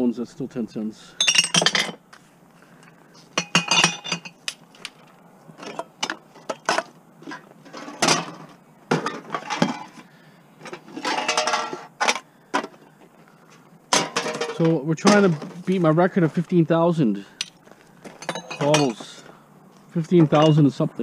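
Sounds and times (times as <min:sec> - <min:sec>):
glass bottles and cans clinking: 0:01.2 - 0:02.0, 0:03.4 - 0:04.4, 0:05.6 - 0:10.0, 0:10.7 - 0:12.7, 0:13.9 - 0:15.5, 0:18.2 - 0:19.2, 0:20.2 - 0:20.7.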